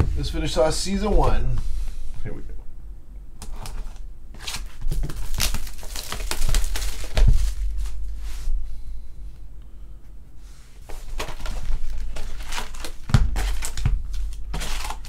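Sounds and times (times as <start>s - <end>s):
low steady hum: 0.0s - 15.0s
plastic wrap tearing and crackling: 3.4s - 8.0s, 10.9s - 15.0s.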